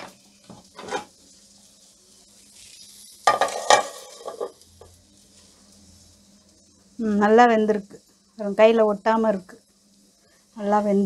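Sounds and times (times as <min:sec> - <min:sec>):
metal lid clanking and scraping: 0:00.8 - 0:01.1, 0:03.3 - 0:04.6.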